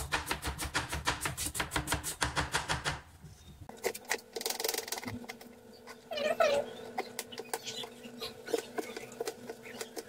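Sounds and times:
knife chopping on board: 0.0 - 3.0.

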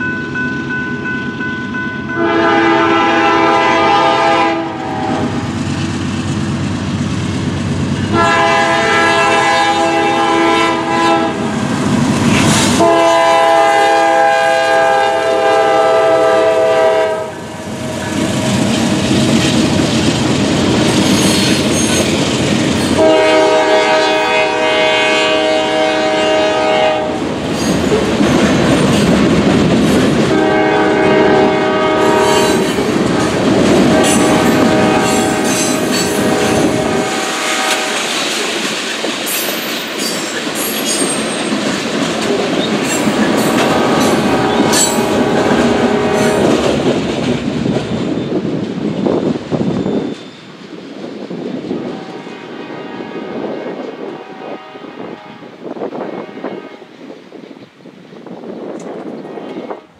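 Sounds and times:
train rumbling past: 0.0 - 59.9
locomotive horn blasts: 2.1 - 5.4, 8.1 - 11.5, 12.8 - 18.3, 23.0 - 27.2, 30.3 - 32.6, 33.9 - 38.1, 43.6 - 46.5, 51.9 - 56.9
wheels clacking over rail joints: 27.4 - 30.4, 37.7 - 48.2.

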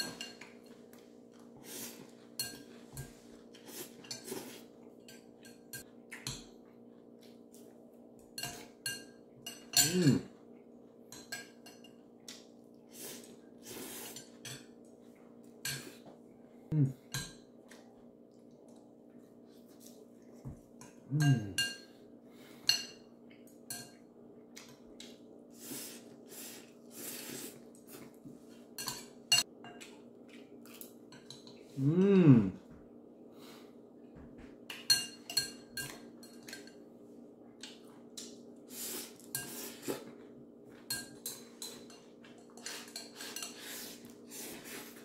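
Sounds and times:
utensils clinking on ceramic bowl: 0.0 - 0.8, 8.3 - 10.3, 11.1 - 12.1, 20.8 - 21.9, 28.8 - 30.0, 34.7 - 36.8, 40.7 - 43.8
hummed vocal sound: 16.7 - 17.0, 21.1 - 21.6, 31.8 - 32.7
slurping and chewing noodles: 25.0 - 28.2, 41.6 - 45.0.

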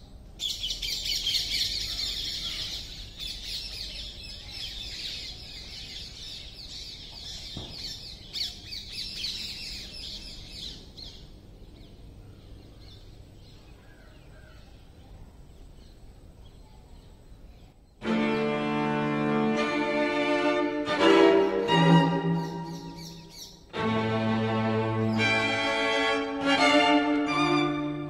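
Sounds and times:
outdoor ambience: 0.0 - 28.0
small birds chirping: 0.4 - 18.0, 22.1 - 23.8
brief knocks: 7.5 - 8.0.

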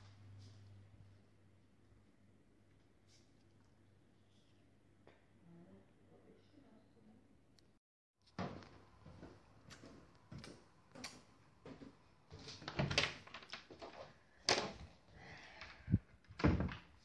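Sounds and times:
footsteps on wooden stairs: 8.3 - 12.7.

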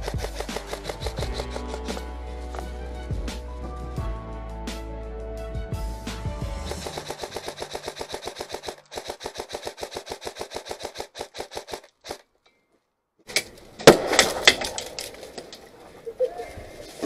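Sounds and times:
airsoft rifle rapid fire: 0.0 - 2.0, 6.7 - 12.2.

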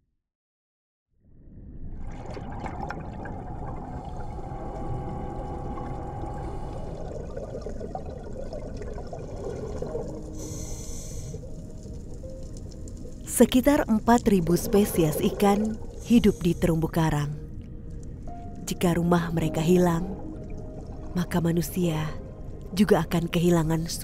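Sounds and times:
muffled underwater rush: 1.2 - 13.3, 14.0 - 17.1
water bubbling: 1.5 - 22.7
bright hiss: 10.4 - 11.5.

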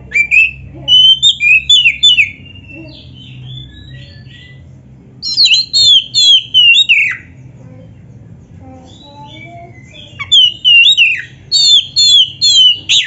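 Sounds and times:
bird singing whistled notes: 0.1 - 4.6, 5.2 - 7.3, 9.0 - 13.0.

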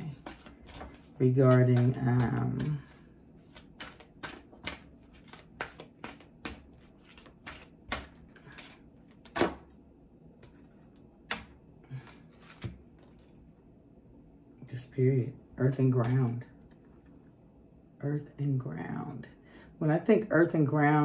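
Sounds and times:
cards being shuffled: 0.0 - 9.7, 12.1 - 13.4.

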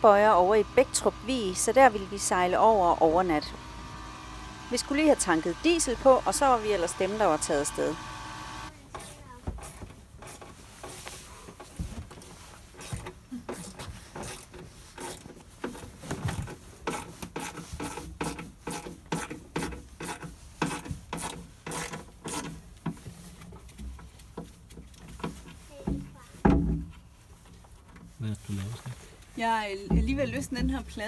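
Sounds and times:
fittings rubbing against panels: 12.3 - 25.6.

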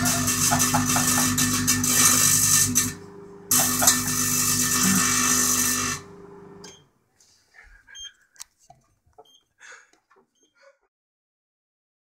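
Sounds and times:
microwave oven humming: 0.0 - 6.9
crackling buzz of plasma arcing: 0.1 - 6.0.

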